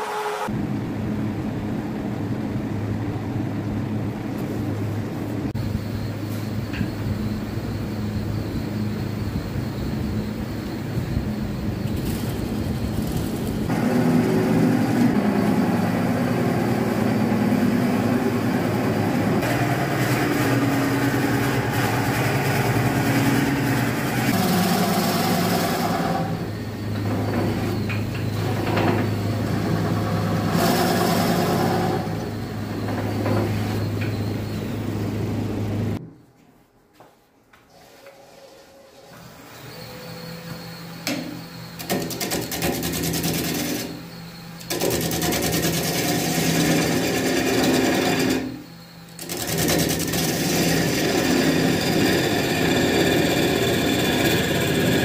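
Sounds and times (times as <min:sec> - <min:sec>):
motor hum: 0:00.0 - 0:36.1, 0:38.8 - 0:55.0
wood lathe cutting: 0:19.4 - 0:33.3, 0:44.7 - 0:48.6, 0:49.2 - 0:55.0.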